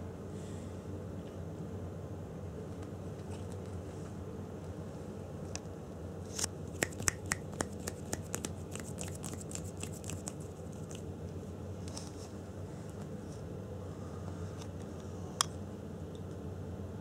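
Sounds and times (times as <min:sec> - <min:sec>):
cat claws scratching yarn: 0:06.8 - 0:11.1.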